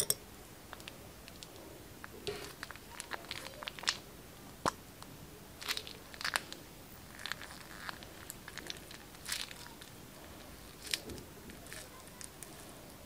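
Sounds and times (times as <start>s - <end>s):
plastic piping bag crinkling: 2.2s - 4.0s, 5.6s - 13.0s.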